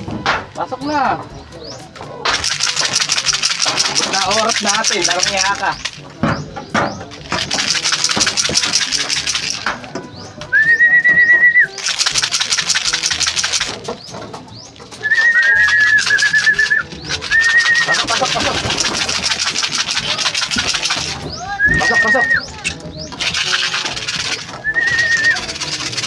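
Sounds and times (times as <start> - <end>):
can of feed rattling: 2.2 - 10.2, 11.7 - 26.0
short held whistles: 10.5 - 11.8, 15.0 - 18.0, 24.3 - 25.7.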